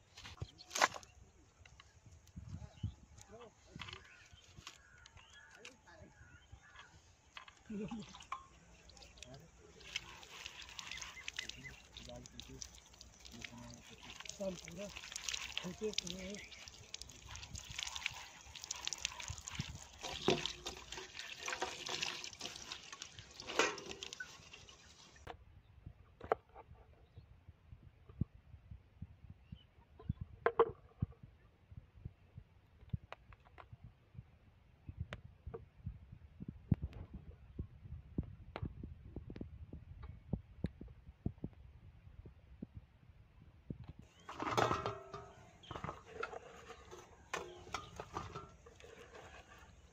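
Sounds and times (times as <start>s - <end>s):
water trickling and splashing: 7.6s - 25.3s, 44.0s - 49.9s.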